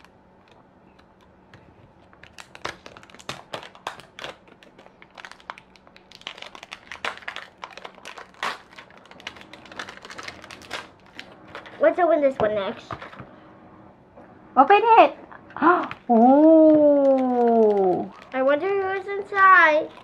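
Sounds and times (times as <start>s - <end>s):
plastic wrapping crinkling: 2.0s - 13.2s, 15.8s - 20.0s.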